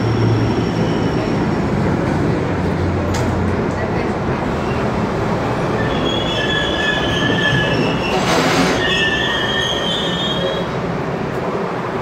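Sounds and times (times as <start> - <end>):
train rumble: 0.0 - 12.0
steel wheels squealing: 5.7 - 10.7.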